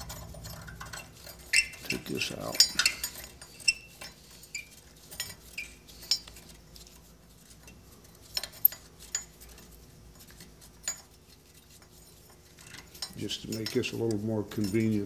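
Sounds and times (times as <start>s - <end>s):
metallic clinks and ticks: 0.0s - 4.2s.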